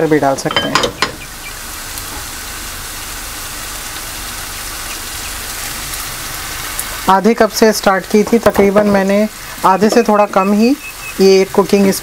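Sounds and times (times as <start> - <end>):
masala sizzling in oil: 0.0 - 12.0.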